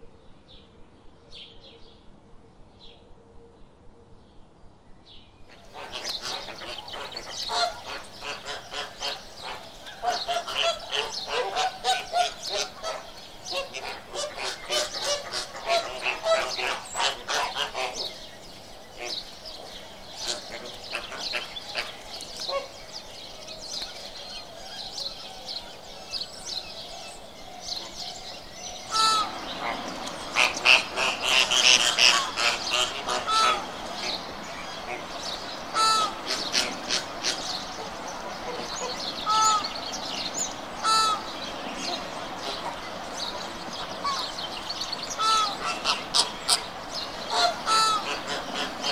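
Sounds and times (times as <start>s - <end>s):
flamingos honking: 5.5s - 23.3s, 27.8s - 48.9s.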